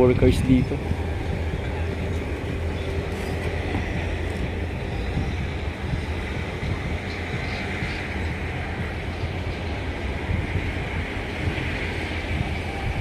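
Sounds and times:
earthmoving machinery engine rumble: 0:00.0 - 0:13.0.

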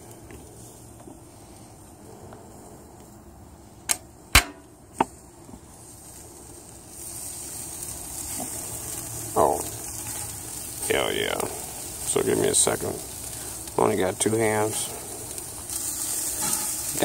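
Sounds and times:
sausages sizzling on a grill: 0:00.0 - 0:17.0.

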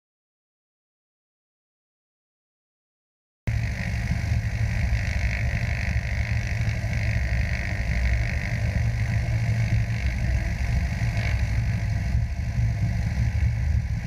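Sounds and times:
light aircraft engine and propeller: 0:03.5 - 0:14.0.

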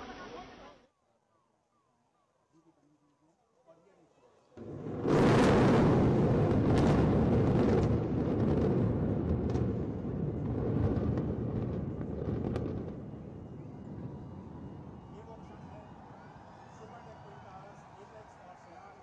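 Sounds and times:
deep rumble of building collapse: 0:04.6 - 0:16.1.

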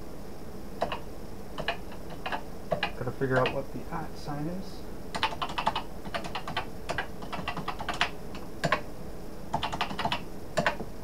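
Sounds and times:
keyboard keys clacking: 0:05.2 - 0:08.8, 0:09.5 - 0:10.8.

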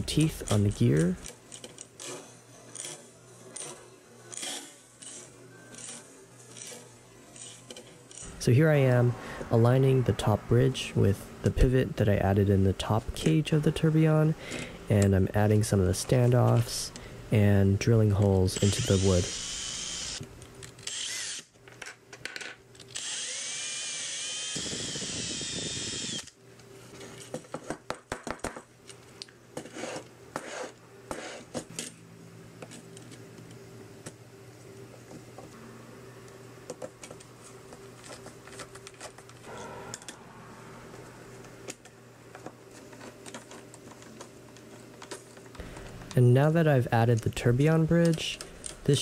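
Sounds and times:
cordless drill whining: 0:23.0 - 0:26.3.

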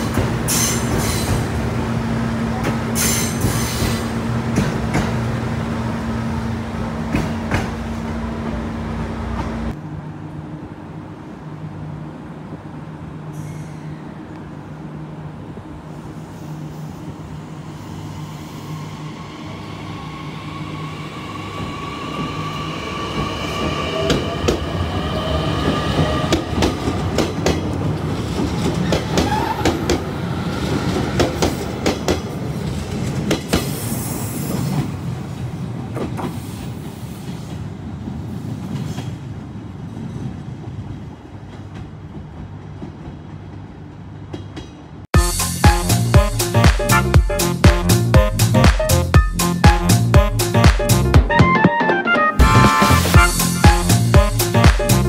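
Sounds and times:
train wheels clicking over rail joints: 0:02.6 - 0:05.3.

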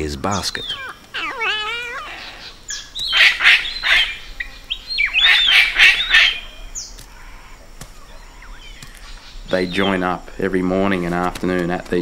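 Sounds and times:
cockatoo screeching: 0:00.5 - 0:07.6.

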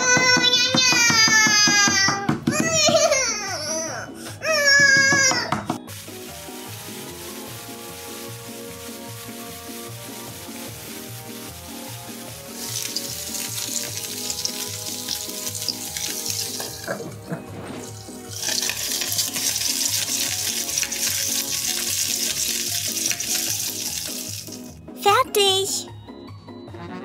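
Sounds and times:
light background music with beat: 0:00.0 - 0:27.0
vegetables sizzling in a pan: 0:05.9 - 0:17.0, 0:17.8 - 0:24.8.

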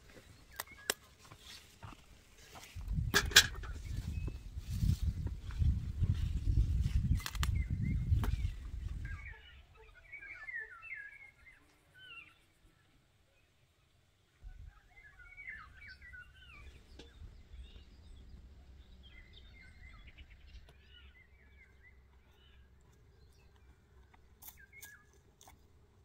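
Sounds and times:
small songbirds chirping: 0:00.0 - 0:25.8.

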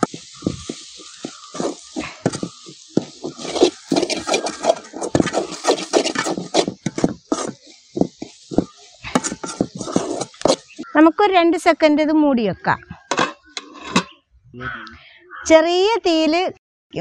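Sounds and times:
spatula scraping a metal wok: 0:00.0 - 0:10.8, 0:13.0 - 0:14.2.

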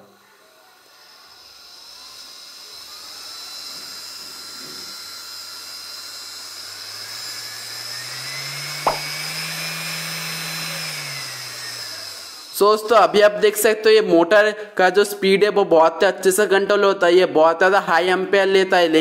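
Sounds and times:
electric motor whining: 0:00.0 - 0:13.5
sharp click: 0:08.8 - 0:09.2.

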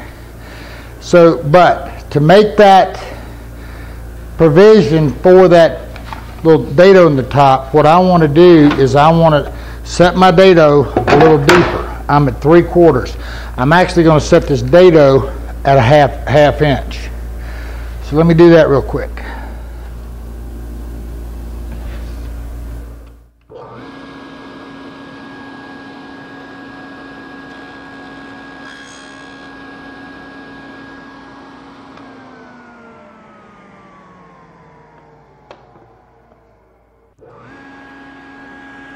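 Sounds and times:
table saw whining: 0:00.0 - 0:15.6, 0:23.5 - 0:38.9.

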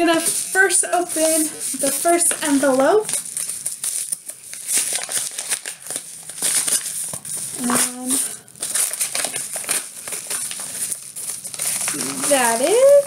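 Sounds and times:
paper envelope tearing and crinkling: 0:00.1 - 0:13.0
person humming: 0:11.9 - 0:12.9.

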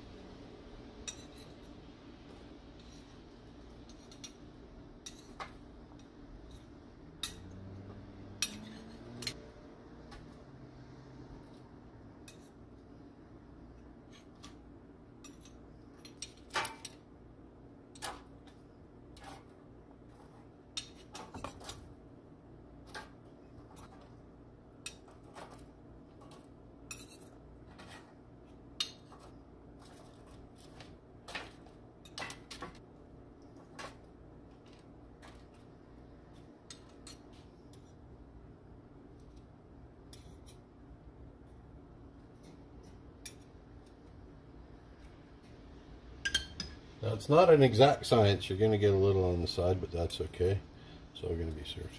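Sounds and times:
metal spoons clinking and scraping: 0:01.0 - 0:01.7, 0:02.8 - 0:04.4, 0:05.0 - 0:07.6, 0:08.3 - 0:09.4, 0:12.2 - 0:12.6, 0:15.2 - 0:17.0, 0:20.2 - 0:21.9, 0:24.8 - 0:28.1, 0:28.8 - 0:32.7, 0:36.7 - 0:38.0, 0:40.1 - 0:40.6, 0:42.8 - 0:43.5, 0:46.3 - 0:46.8.

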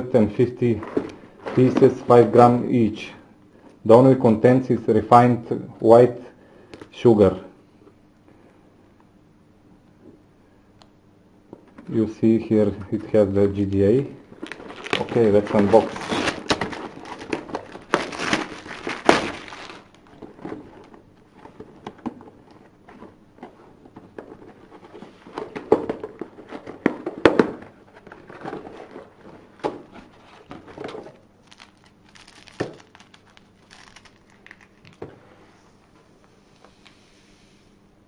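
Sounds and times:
cardboard box being opened: 0:14.4 - 0:20.8
plastic wrapping crinkling: 0:14.4 - 0:21.6, 0:28.0 - 0:35.0.

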